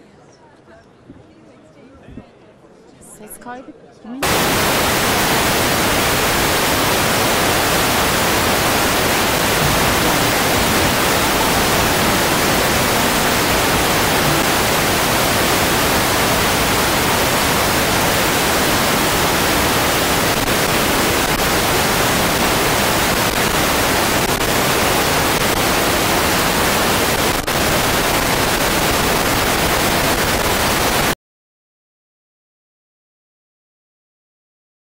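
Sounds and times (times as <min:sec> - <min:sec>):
static hiss: 0:04.2 - 0:31.2.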